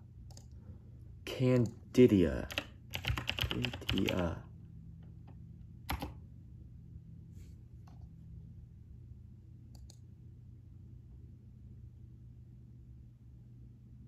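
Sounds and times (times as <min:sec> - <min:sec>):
keyboard and mouse clicks: 0:00.3 - 0:00.6, 0:05.2 - 0:06.2, 0:09.7 - 0:10.0
low hum: 0:04.4 - 0:14.0.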